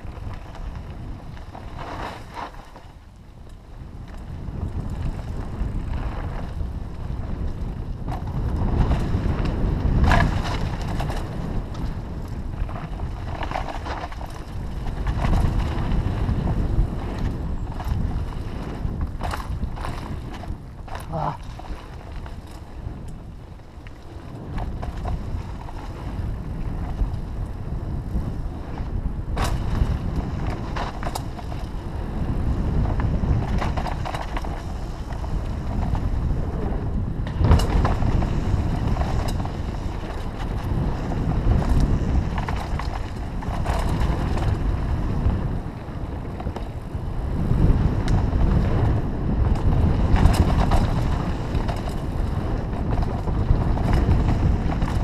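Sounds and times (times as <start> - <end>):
bike tyre and chassis rattle: 0.0 - 55.0
wind rushing over microphone: 0.0 - 55.0
bike knocking over bumps: 29.2 - 36.4, 37.2 - 45.5.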